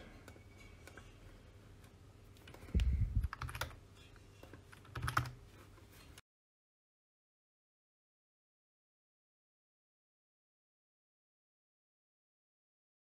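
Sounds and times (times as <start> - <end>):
computer keyboard clicks: 2.4 - 3.8, 4.7 - 5.4.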